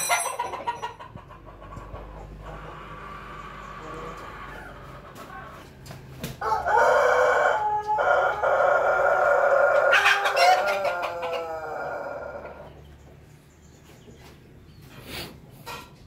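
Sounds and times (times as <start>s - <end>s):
rooster crowing: 6.4s - 12.7s.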